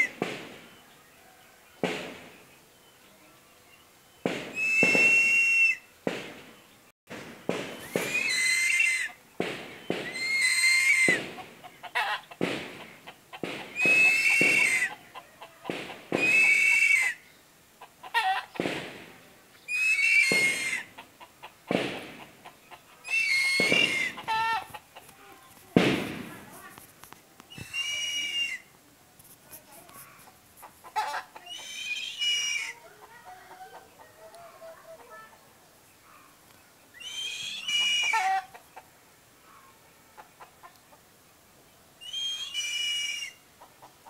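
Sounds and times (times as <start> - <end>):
eagle harsh calls: 4.2 - 6.0, 7.5 - 19.1, 19.7 - 25.4, 27.5 - 28.7, 30.0 - 35.3, 37.0 - 38.6, 42.0 - 43.6.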